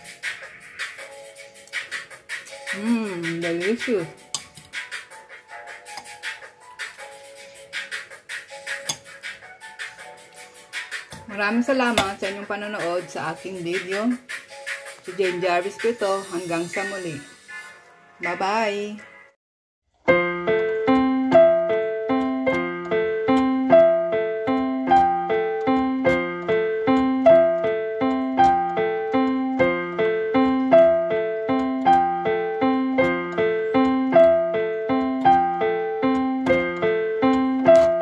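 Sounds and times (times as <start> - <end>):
keyboard playing repeating notes: 20.0 - 38.0.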